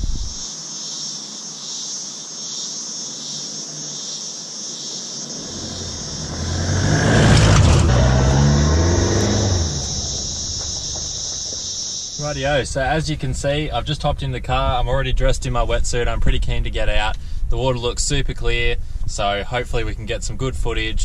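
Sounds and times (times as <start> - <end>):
high insect drone: 0.0 - 13.9
vehicle engine revving: 5.2 - 12.2
tyres on gravel: 5.4 - 12.8.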